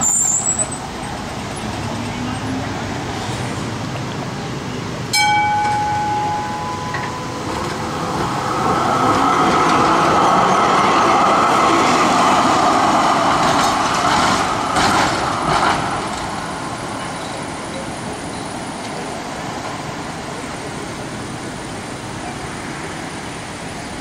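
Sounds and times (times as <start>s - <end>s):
tram wheels on rails: 0.0s - 24.0s
tram gong ringing: 5.1s - 11.8s.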